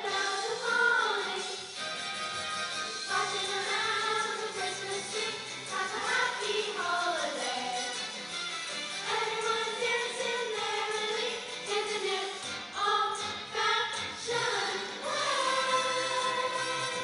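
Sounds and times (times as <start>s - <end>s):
choir singing: 3.1s - 7.9s, 9.1s - 17.0s.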